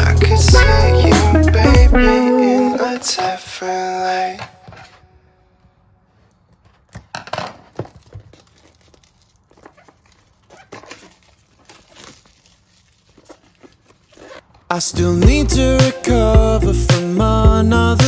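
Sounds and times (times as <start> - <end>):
packaging rustling and crinkling: 6.2 - 14.8.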